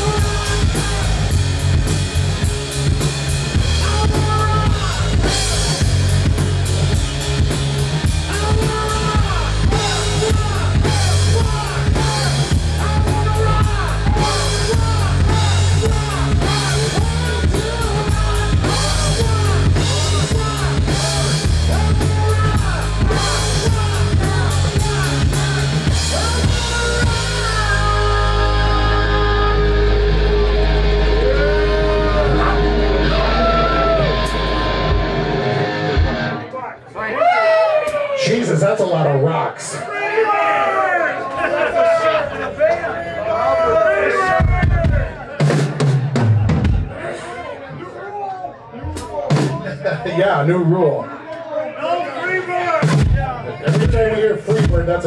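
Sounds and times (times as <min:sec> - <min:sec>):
drum kit: 0:00.0 - 0:36.4, 0:44.2 - 0:47.0, 0:48.8 - 0:50.0, 0:52.8 - 0:55.0
rock band playing: 0:00.0 - 0:37.0, 0:43.6 - 0:47.5, 0:48.8 - 0:50.8, 0:52.6 - 0:55.0.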